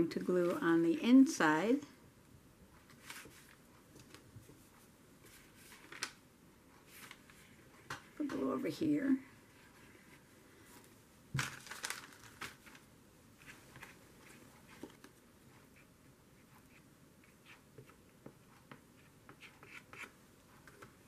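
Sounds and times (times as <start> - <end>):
paper rustling and crinkling: 2.9 - 4.6, 5.3 - 6.2, 6.8 - 8.0, 9.8 - 15.2.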